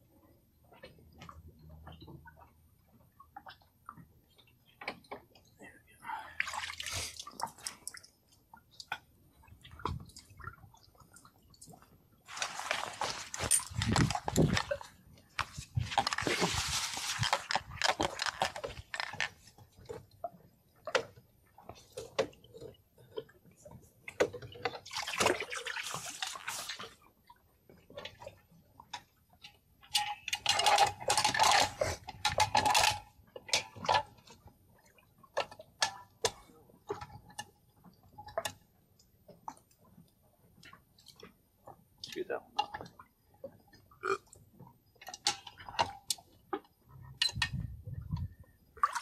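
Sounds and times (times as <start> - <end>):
water splashing: 6.3 - 8.1, 8.8 - 19.3, 24.4 - 27.0, 48.8 - 49.0.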